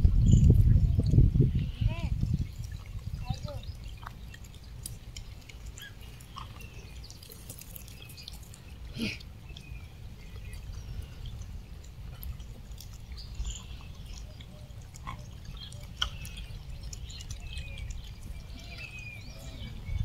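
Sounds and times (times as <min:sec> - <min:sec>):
wind rumble on microphone: 0:00.0 - 0:05.4, 0:09.4 - 0:20.0.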